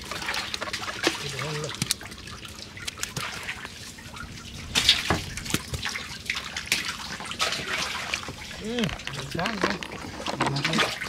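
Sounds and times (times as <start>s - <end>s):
dripping trickling water: 0.0s - 11.0s
wet net slaps and clicks: 2.8s - 3.4s.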